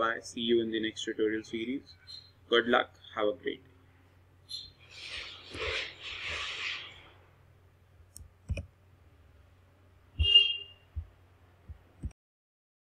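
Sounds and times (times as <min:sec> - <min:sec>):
computer keyboard and mouse clicks: 0:08.1 - 0:08.7.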